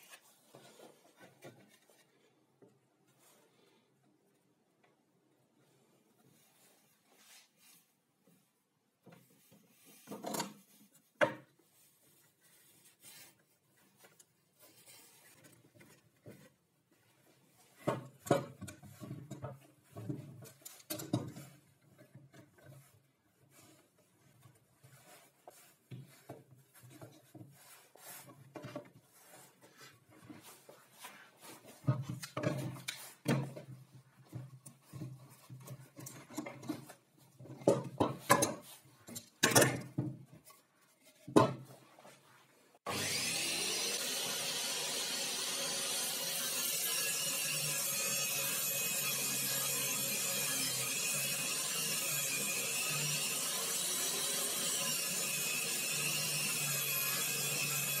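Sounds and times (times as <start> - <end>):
clamps and plywood clattering: 34.4 - 40.3
table saw running: 42.9 - 58.0.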